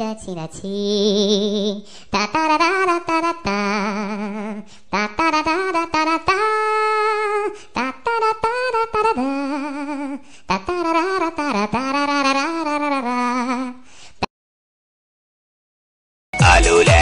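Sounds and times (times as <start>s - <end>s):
person singing ringtone tune: 16.4s - 17.0s.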